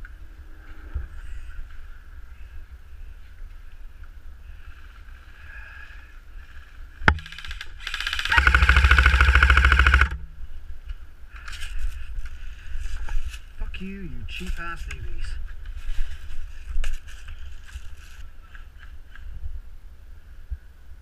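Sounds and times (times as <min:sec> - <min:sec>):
muffled airsoft rifle firing: 0:07.1 - 0:10.4.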